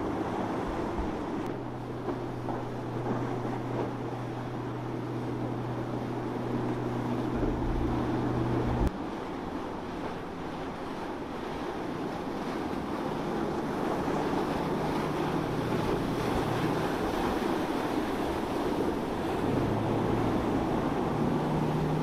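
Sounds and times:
boat engine drone: 0.0 - 22.0
waves: 0.0 - 22.0
wind buffeting microphone: 0.0 - 22.0.

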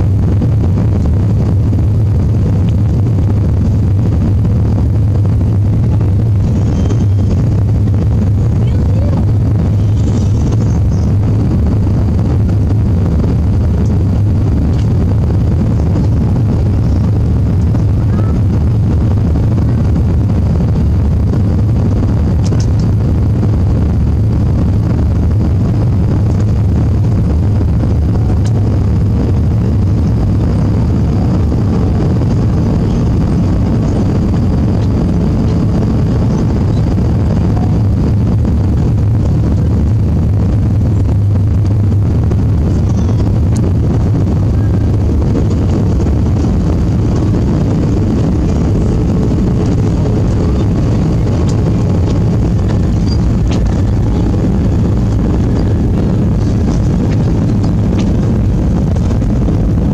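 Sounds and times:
airplane cabin engine rumble: 0.0 - 59.9.

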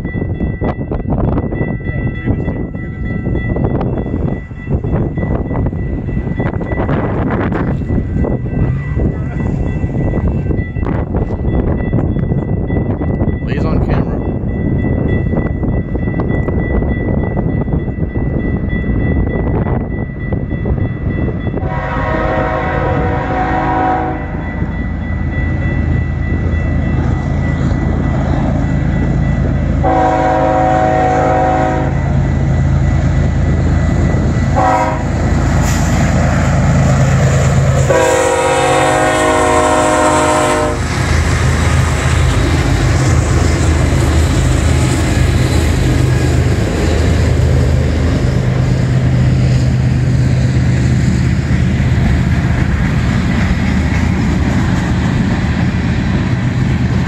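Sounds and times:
diesel locomotive engine rumble: 0.0 - 57.0
train wheels on rail: 0.0 - 57.0
train horn blasts: 21.6 - 24.4, 29.8 - 32.1, 34.5 - 35.8, 37.8 - 40.9.

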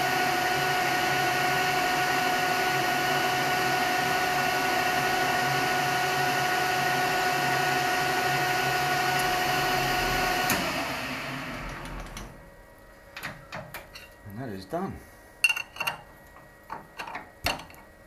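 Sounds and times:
metal lathe whining: 0.4 - 12.3.

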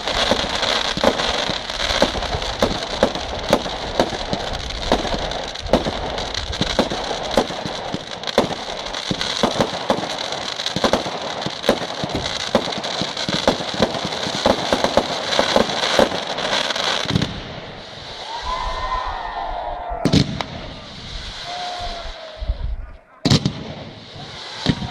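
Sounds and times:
fireworks popping and banging: 0.0 - 18.2, 20.0 - 22.0, 22.6 - 24.9
fireworks crackling: 0.0 - 24.9.

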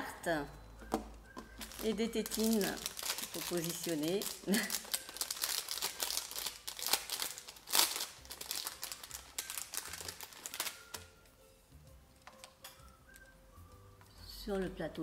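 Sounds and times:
plastic bag crinkling: 1.5 - 11.0.

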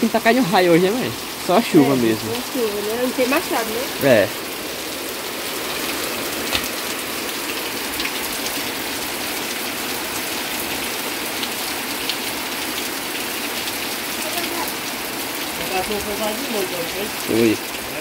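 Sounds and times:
heavy rain falling: 0.0 - 18.0
sharp raindrop hits: 5.8 - 8.8.

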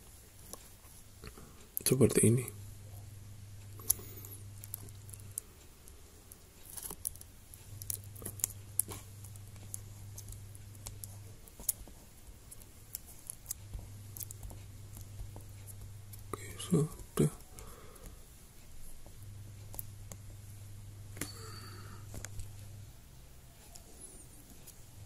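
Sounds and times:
faint clicks and rustles: 0.0 - 1.9, 3.6 - 25.0
low hum: 2.4 - 11.5.

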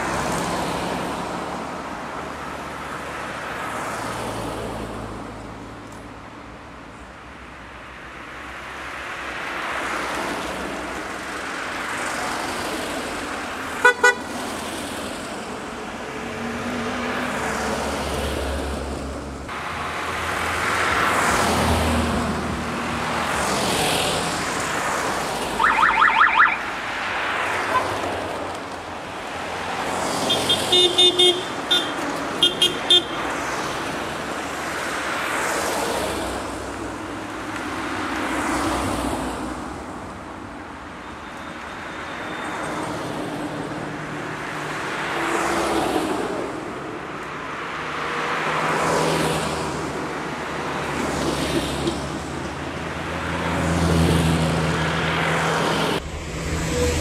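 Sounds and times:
cars driving past: 0.0 - 6.7, 7.4 - 57.0
car horn beeps: 13.8 - 14.3, 25.6 - 26.6, 30.3 - 33.3.

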